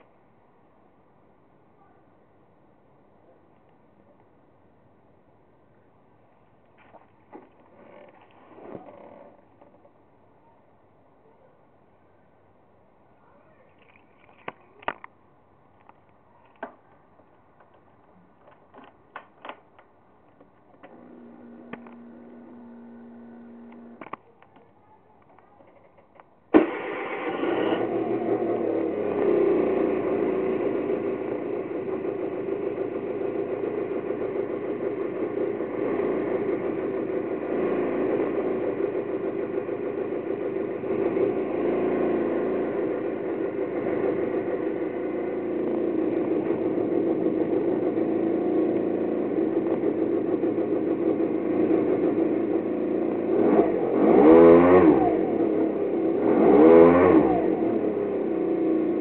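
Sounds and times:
scooter engine idling and revving: 6.8s - 10.0s, 20.8s - 24.3s, 26.6s - 59.0s.

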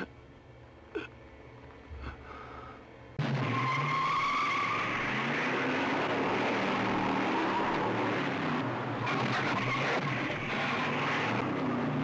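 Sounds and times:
car engine revving: 3.2s - 12.0s
car tyres squealing: 3.3s - 12.0s.

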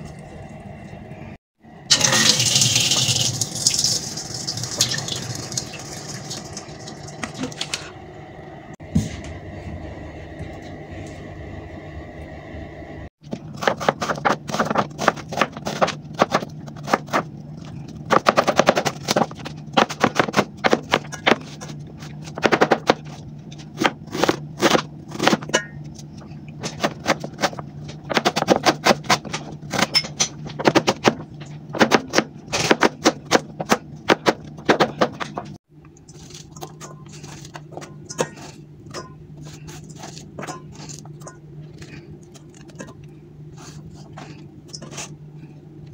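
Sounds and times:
steady low hum: 5.3s - 45.9s.

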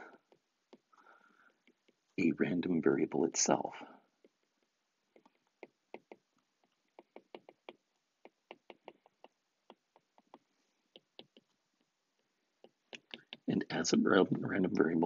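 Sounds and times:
stylus tapping on glass screen: 5.1s - 13.5s.

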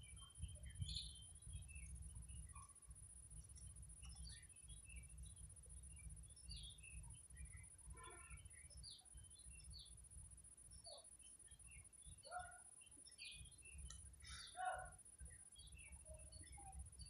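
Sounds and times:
bird chirps and peeps: 3.4s - 10.0s.

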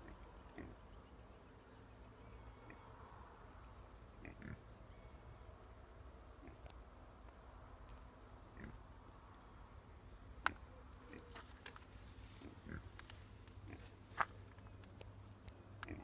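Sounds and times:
pigs grunting softly: 12.3s - 12.9s.

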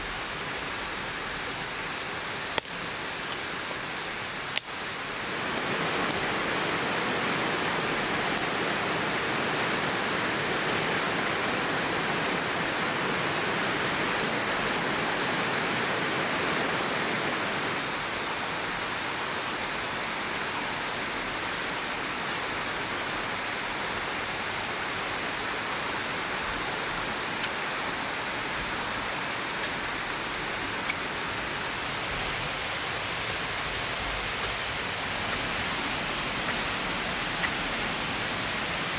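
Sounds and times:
flowing water rushing: 0.0s - 38.9s
faint clicks: 37.4s - 37.6s.

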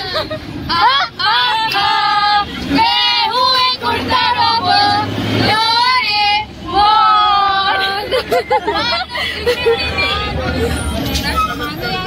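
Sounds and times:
moving bus hum: 0.0s - 12.0s
women singing unaccompanied: 0.7s - 10.4s.

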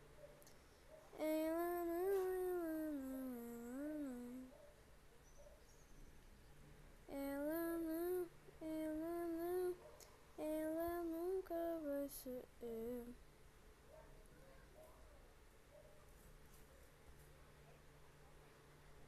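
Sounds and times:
person singing slow tune: 1.2s - 4.6s, 7.1s - 9.8s, 10.4s - 13.2s.

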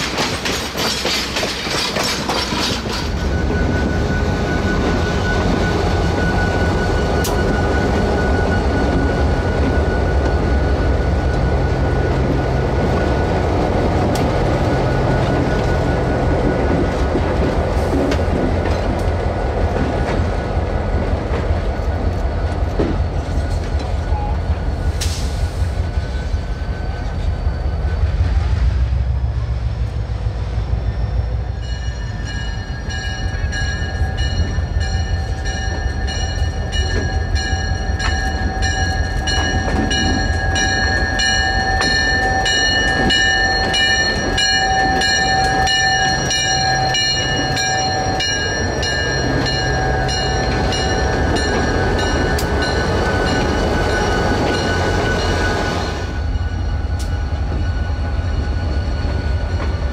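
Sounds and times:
diesel locomotive rumbling: 0.0s - 59.9s
locomotive bell ringing: 1.8s - 14.0s, 31.2s - 59.9s.

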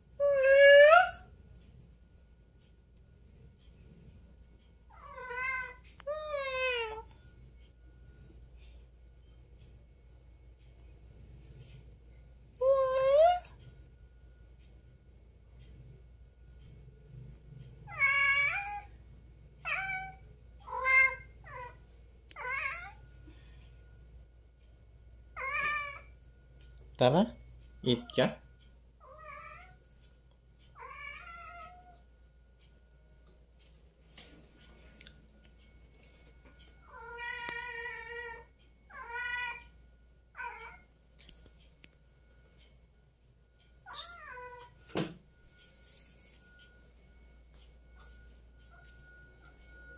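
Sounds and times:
cat meowing: 17.9s - 18.9s, 43.9s - 44.7s.

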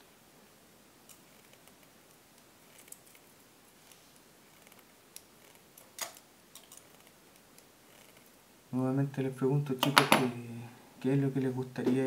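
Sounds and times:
pliers clicking on wire: 5.2s - 7.7s.

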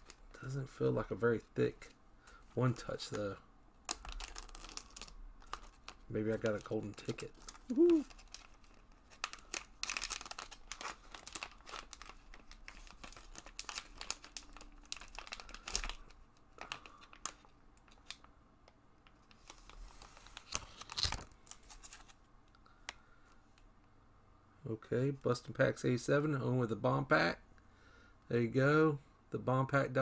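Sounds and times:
foil pouch crinkling: 3.9s - 18.2s, 19.1s - 22.1s.

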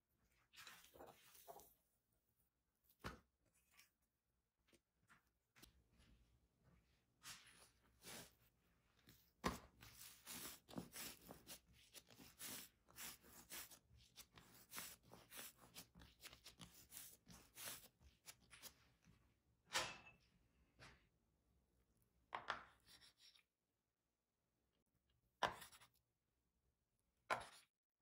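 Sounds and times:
hands rubbing and patting dough: 2.8s - 19.2s.

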